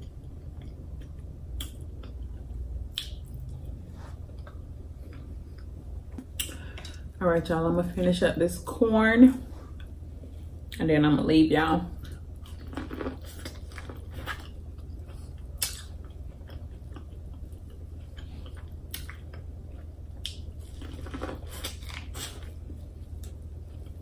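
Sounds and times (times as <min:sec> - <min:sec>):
person biting and chewing corn: 0:12.4 - 0:24.0.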